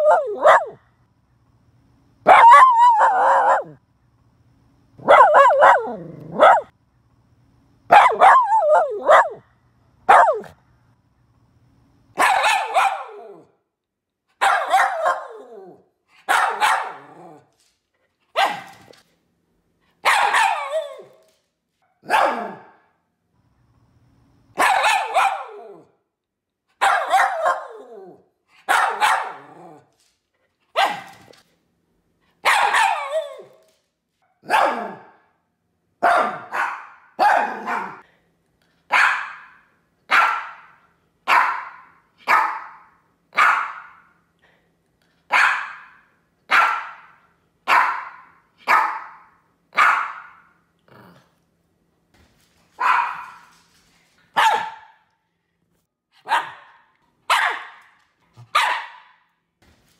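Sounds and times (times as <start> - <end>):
dog barking: 0.0 - 0.8, 2.3 - 3.8, 5.0 - 6.7, 7.9 - 9.4, 10.1 - 10.6, 12.2 - 13.4, 14.4 - 15.5, 16.2 - 17.2, 18.4 - 18.8, 20.0 - 21.1, 21.9 - 22.8, 24.6 - 25.9, 26.8 - 27.9, 28.6 - 29.6, 30.7 - 31.2, 32.4 - 33.5, 34.3 - 35.2, 36.0 - 38.0, 38.9 - 44.1, 45.3 - 50.5, 52.8 - 53.5, 54.3 - 55.1, 56.2 - 59.3.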